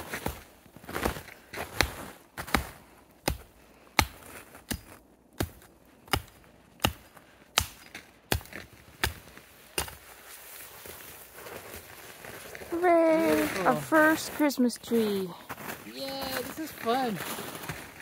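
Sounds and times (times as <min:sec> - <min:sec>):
axe chopping tree trunk: 0:01.7 - 0:10.0.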